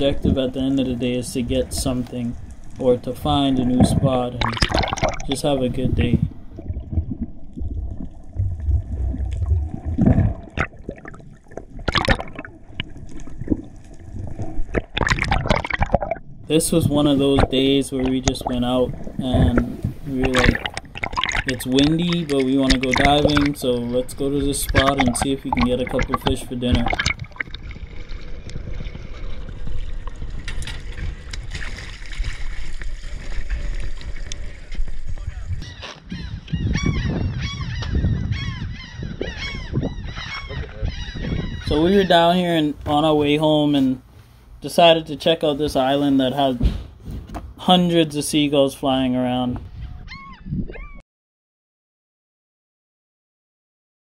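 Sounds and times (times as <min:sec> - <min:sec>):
underwater water rumble: 0:00.0 - 0:35.6
water rushes: 0:00.0 - 0:35.6
wind on microphone: 0:03.5 - 0:04.5, 0:05.3 - 0:10.5, 0:33.0 - 0:42.0, 0:49.6 - 0:51.0.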